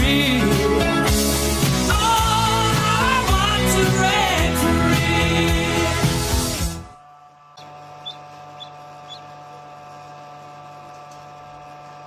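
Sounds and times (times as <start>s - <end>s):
incubator electric hum: 0.0s - 12.0s
duckling peeping: 7.6s - 9.4s.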